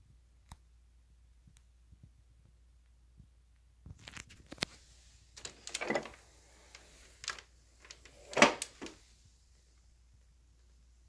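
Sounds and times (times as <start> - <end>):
object handling clicks and knocks: 7.2 - 9.0.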